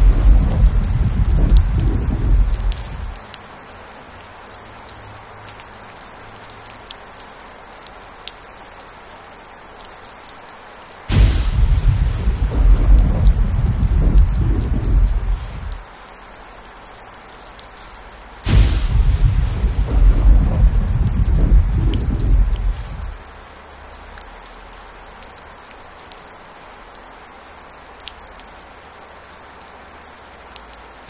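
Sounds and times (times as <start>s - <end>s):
thunder rumbling: 0.0s - 3.2s, 11.1s - 15.8s, 18.4s - 23.3s
thunderclap: 0.0s - 3.2s, 11.1s - 15.8s, 18.4s - 23.3s
heavy rain falling: 0.0s - 31.0s.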